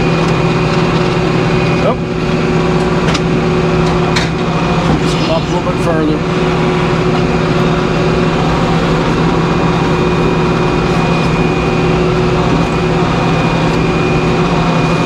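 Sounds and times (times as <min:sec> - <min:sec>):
engine hum: 0:00.0 - 0:15.0
thin high whine: 0:03.4 - 0:15.0.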